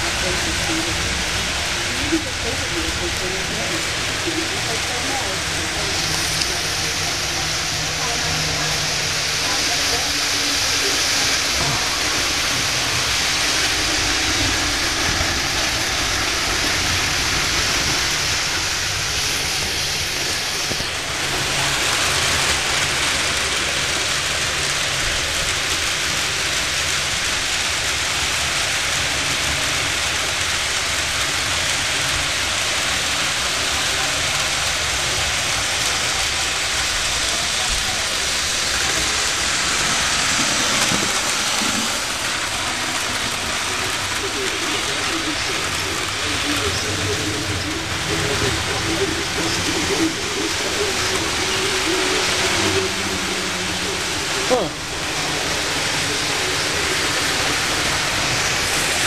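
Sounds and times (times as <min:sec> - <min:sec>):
model trains running on track: 0:00.0 - 0:59.0.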